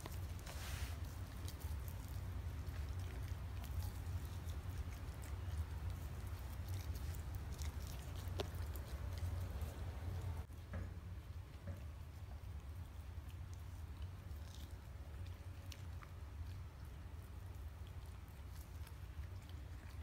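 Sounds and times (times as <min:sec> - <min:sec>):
steady low hum: 0:00.0 - 0:20.0
dog licking wet clicks: 0:01.1 - 0:10.4.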